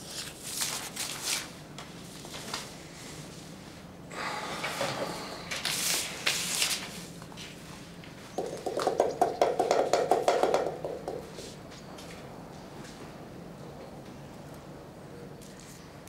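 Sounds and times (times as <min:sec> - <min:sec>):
paper rustling: 0:00.0 - 0:02.8, 0:05.6 - 0:07.6.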